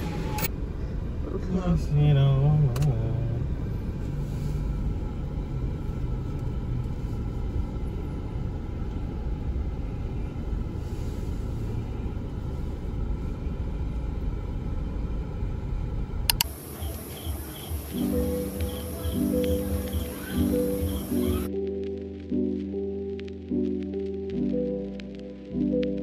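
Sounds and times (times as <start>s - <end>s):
vehicle rumble in motion: 0.0s - 26.0s
sharp click: 16.3s - 16.5s.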